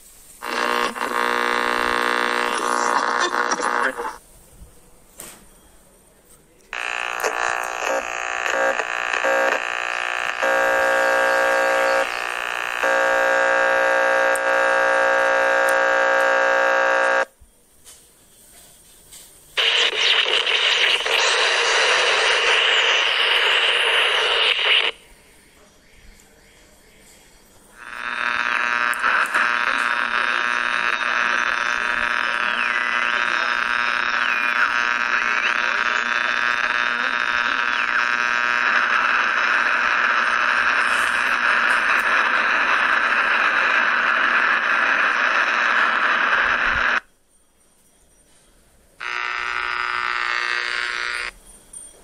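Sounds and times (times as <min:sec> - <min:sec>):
radio interference buzzing: 0:00.0 - 0:04.2, 0:06.7 - 0:17.4, 0:19.6 - 0:25.0, 0:27.7 - 0:47.1, 0:49.0 - 0:51.4
radio static hiss: 0:00.0 - 0:04.3, 0:06.7 - 0:17.4, 0:19.6 - 0:25.5, 0:27.7 - 0:47.1, 0:49.0 - 0:51.3.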